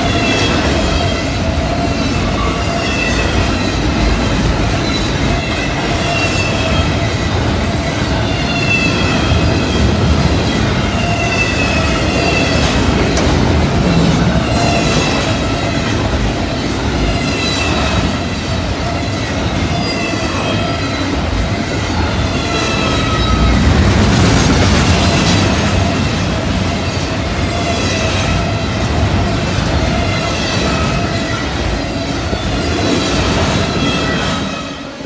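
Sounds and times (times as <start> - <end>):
train wheels clattering on rails: 0.0 - 35.0.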